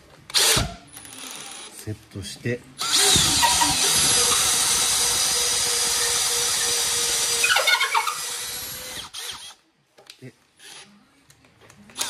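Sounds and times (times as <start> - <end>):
drill bit squealing in wood: 2.8 - 9.5
impact driver motor whining: 2.8 - 9.6.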